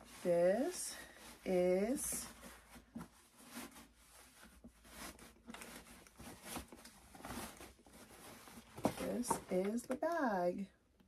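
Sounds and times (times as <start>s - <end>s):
cloth bag rustling: 0.0s - 9.8s.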